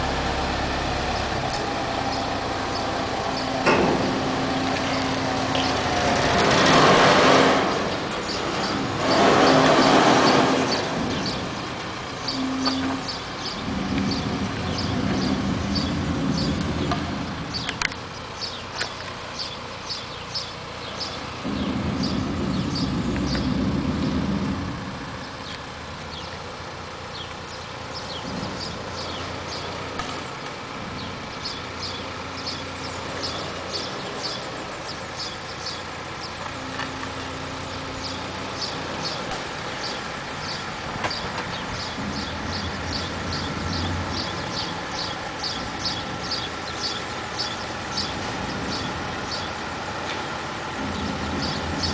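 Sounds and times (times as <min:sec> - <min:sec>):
crane diesel engine under load: 0:00.0 - 0:51.9
small birds chirping: 0:01.1 - 0:03.8, 0:07.9 - 0:51.9.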